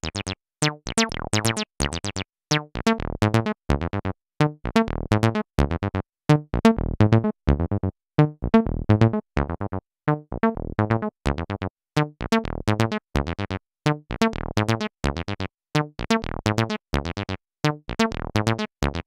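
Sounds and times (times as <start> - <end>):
synthesizer acid bass line: 0.0 - 3.1.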